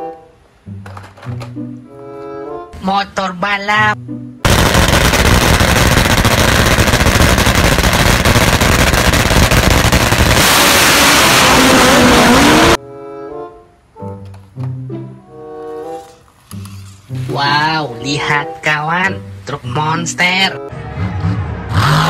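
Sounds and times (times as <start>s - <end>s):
music: 0.0s - 4.5s, 12.8s - 22.0s.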